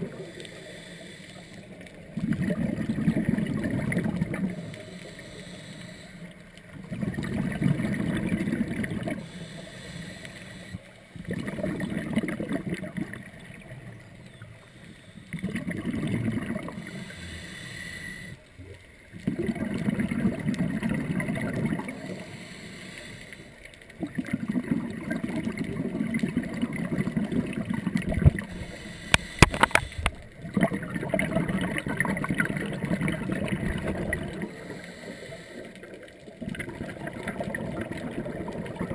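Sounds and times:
diver breathing through regulator: 0.0s - 2.1s, 4.5s - 6.4s, 9.1s - 10.9s, 14.6s - 15.4s, 16.7s - 18.4s, 21.9s - 23.6s, 28.4s - 30.3s, 33.8s - 36.0s
exhaled bubbles gurgling underwater: 0.0s - 38.9s.

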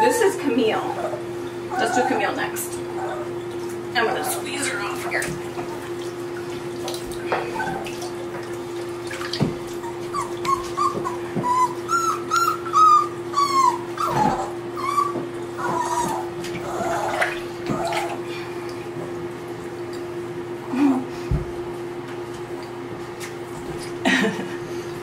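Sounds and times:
puppy whining: 0.0s - 4.8s, 7.3s - 8.2s, 9.6s - 18.3s.

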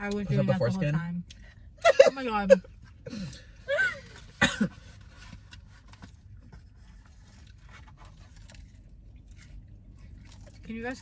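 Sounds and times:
low steady hum: 0.0s - 11.0s
clicks and scrapes of eating: 5.0s - 11.0s.

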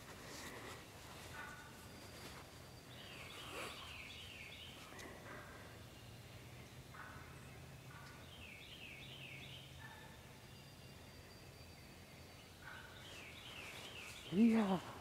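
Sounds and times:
faint low bird calls: 0.0s - 11.6s.

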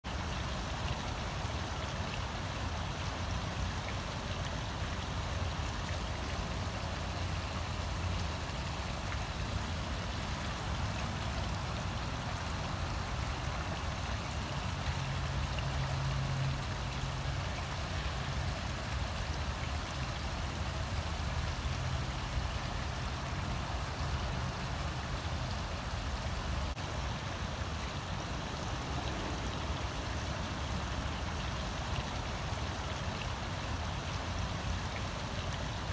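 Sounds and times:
fountain water splashing: 0.0s - 35.9s
low water rumble: 0.1s - 35.9s.

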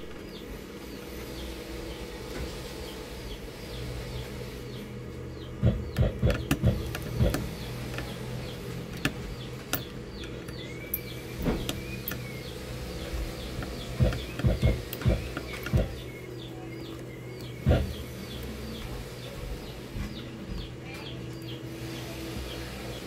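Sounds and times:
low hum: 0.0s - 23.0s
small birds chirping: 0.0s - 23.0s
screwdriver knocks and clicks: 5.6s - 8.1s, 13.6s - 16.0s, 17.6s - 18.0s.

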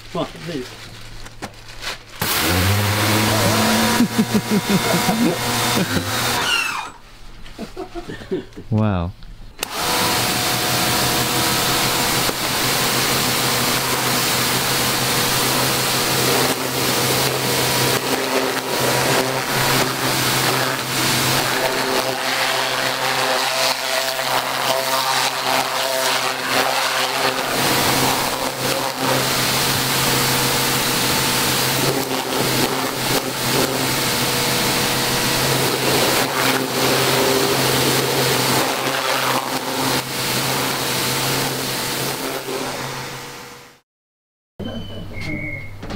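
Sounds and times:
pressure washer motor hum: 2.2s - 7.0s, 9.6s - 43.8s.

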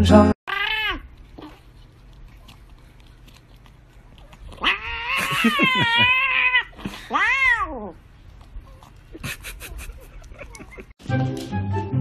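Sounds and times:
cat meowing: 0.5s - 1.6s, 4.6s - 8.0s.

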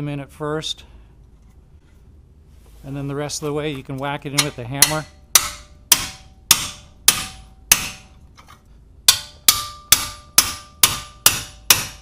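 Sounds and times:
hammer striking steel tool: 4.4s - 8.2s, 9.1s - 12.0s.

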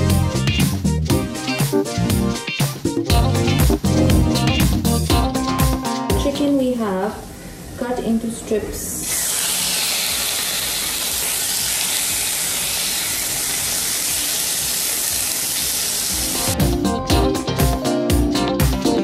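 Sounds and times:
strummed guitar music: 0.0s - 6.2s, 16.2s - 19.0s
chicken sizzling in hot oil: 9.1s - 16.6s.

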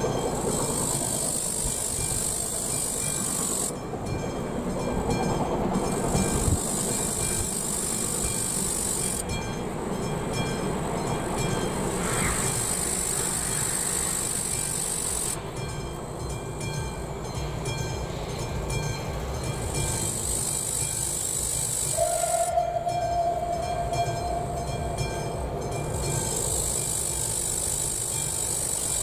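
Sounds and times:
steam locomotive rumbling: 0.0s - 29.0s
steam whistle blast: 21.8s - 25.4s.

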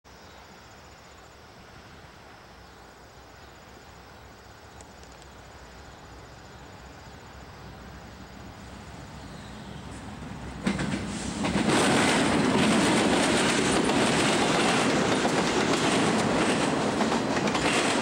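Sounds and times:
insects trilling: 0.1s - 11.4s
distant freight train rumble: 1.4s - 18.0s.

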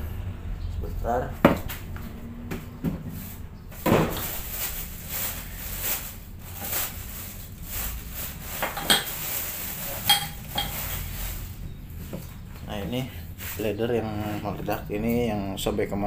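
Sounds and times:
small metal objects clattering: 4.1s - 11.5s.

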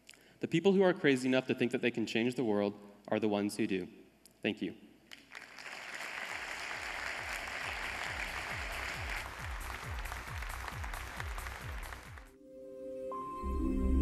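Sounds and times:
audience applauding: 5.1s - 12.4s.

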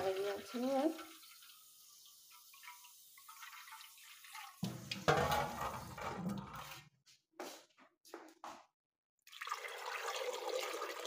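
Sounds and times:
tap water running into metal bowl: 0.0s - 6.8s, 9.3s - 11.0s
water splashing into steel sink: 0.0s - 6.8s.

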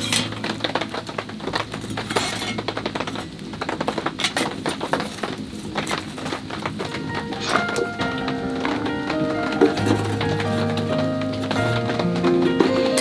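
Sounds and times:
metal trivet clinking and scraping: 0.0s - 0.4s
firewood being shifted: 0.0s - 13.0s.

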